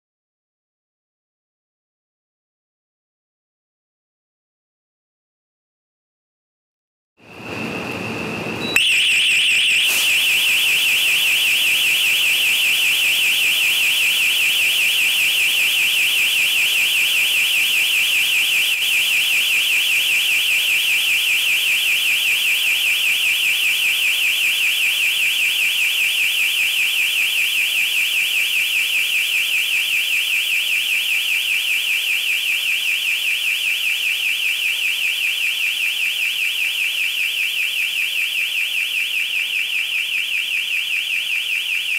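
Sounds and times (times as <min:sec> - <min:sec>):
alarm steady tone: 0:07.5 - 0:41.9
warbling alarm siren: 0:07.5 - 0:41.9.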